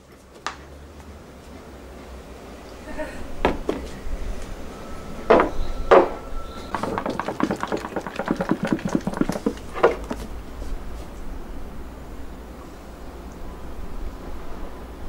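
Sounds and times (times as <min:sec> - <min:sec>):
glass tumblers knocking on wooden table: 0:06.7 - 0:10.2
liquid sloshing in plastic bottle: 0:06.7 - 0:10.3.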